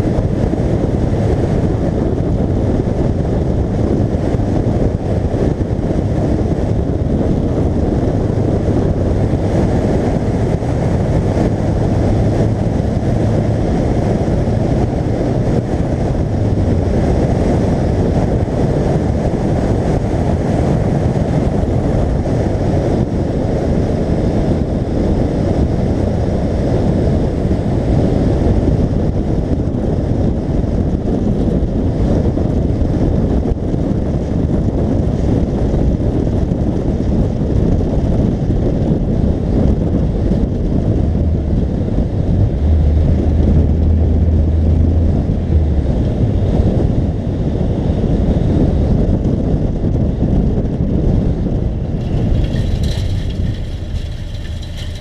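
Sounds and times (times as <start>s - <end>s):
wind rushing over microphone: 0.0s - 55.0s
faint car engine: 39.6s - 49.0s, 51.6s - 55.0s.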